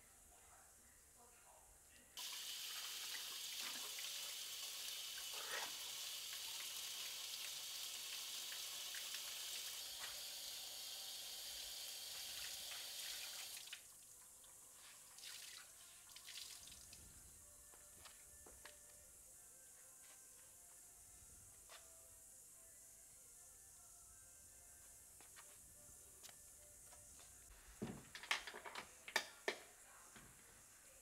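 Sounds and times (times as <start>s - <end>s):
water splashes and drips: 2.2s - 10.2s, 12.1s - 14.2s, 15.0s - 17.0s
tap water running into sink: 2.2s - 13.9s.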